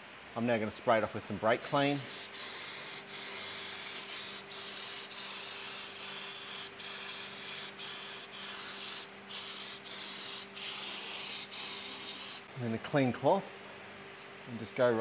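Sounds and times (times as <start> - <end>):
aerosol can spraying: 1.6 - 12.5.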